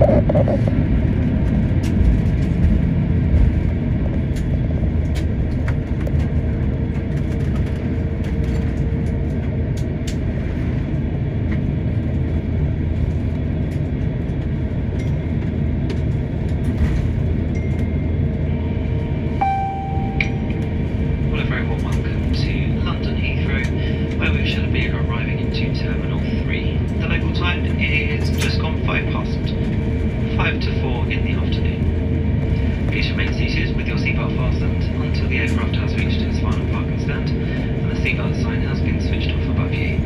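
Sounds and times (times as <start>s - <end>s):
airliner cabin rumble: 0.0s - 40.0s
brief steady tone: 19.4s - 20.7s.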